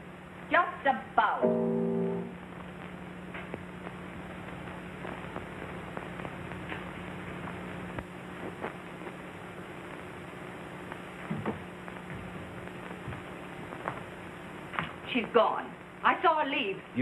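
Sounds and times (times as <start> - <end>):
film soundtrack hiss: 0.0 - 17.0
low hum: 1.3 - 6.6
faint crackles: 2.4 - 17.0.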